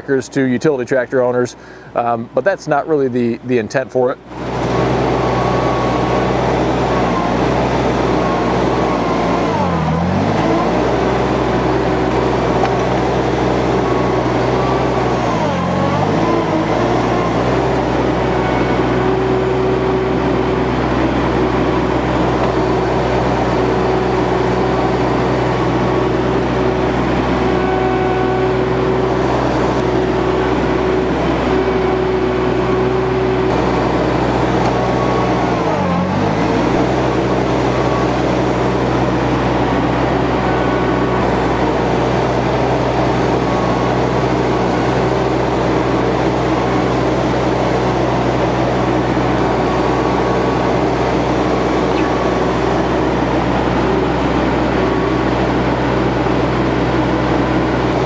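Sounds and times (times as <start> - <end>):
tractor engine under load: 0.0 - 58.0.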